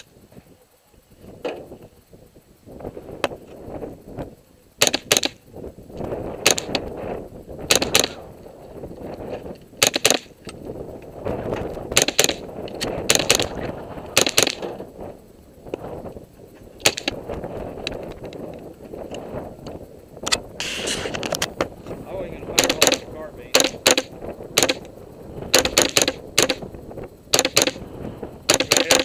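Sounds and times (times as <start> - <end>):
rifle shots: 4.8 - 5.4, 6.4 - 6.8, 7.7 - 8.2, 9.8 - 10.4, 11.9 - 12.5, 13.1 - 13.6, 14.2 - 14.7, 16.8 - 17.2, 22.5 - 24.9, 25.5 - 26.6, 27.3 - 27.8, 28.5 - 29.0.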